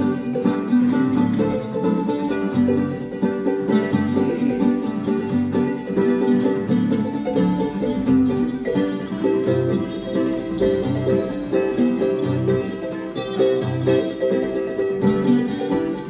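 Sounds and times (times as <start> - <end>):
ukulele and guitars strumming: 0.0 - 16.0.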